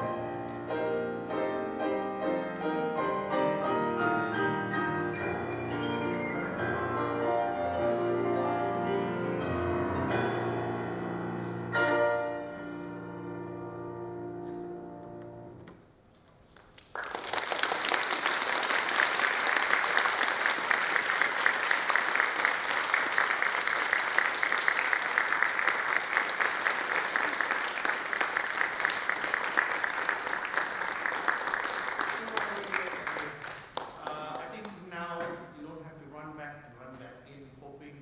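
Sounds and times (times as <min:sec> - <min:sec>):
piano chord ringing: 0:00.0 - 0:15.6
audience applause: 0:16.5 - 0:34.9.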